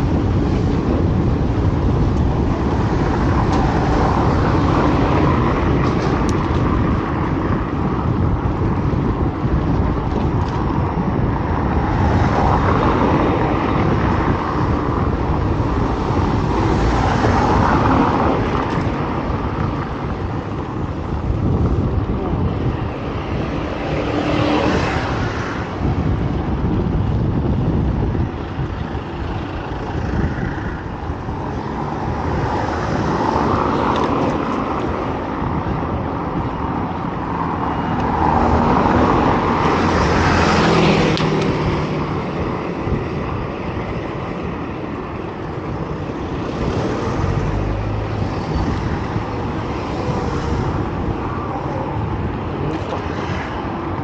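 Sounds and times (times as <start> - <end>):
cars passing: 0.0 - 54.0.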